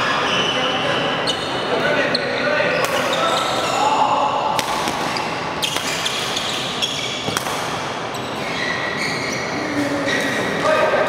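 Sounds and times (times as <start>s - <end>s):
rackets hitting shuttlecock: 4.5s - 8.1s
shoes squeaking on floor: 5.0s - 7.4s, 8.0s - 10.5s.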